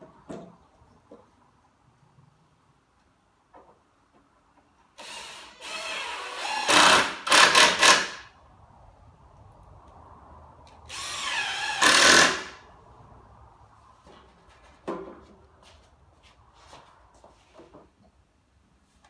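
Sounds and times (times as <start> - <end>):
cordless drill drilling into wood: 5.0 - 8.2, 10.9 - 12.6.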